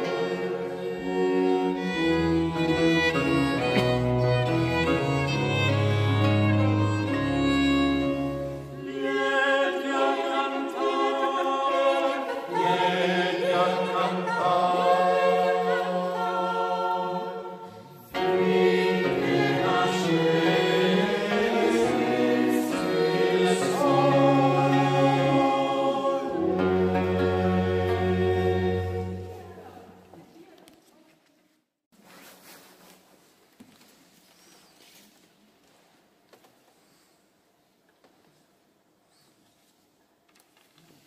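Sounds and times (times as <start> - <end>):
violins and low strings: 0.0 - 14.8, 18.1 - 29.9
mixed choir singing: 0.0 - 29.8.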